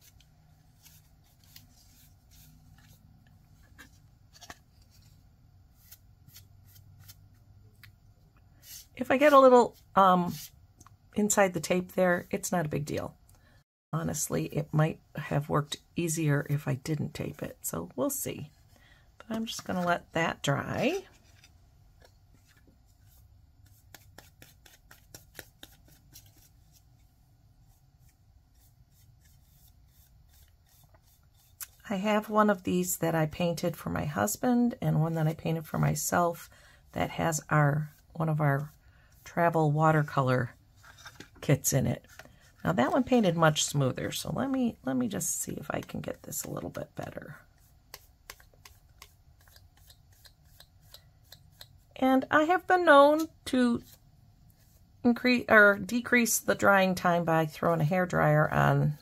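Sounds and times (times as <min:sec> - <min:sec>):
paintbrush brushing on metal: 0:27.7 - 0:31.8.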